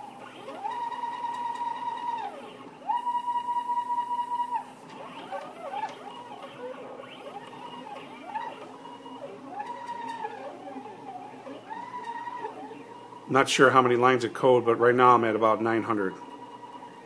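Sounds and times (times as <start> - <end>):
stepper motors whining: 0.0 - 13.4.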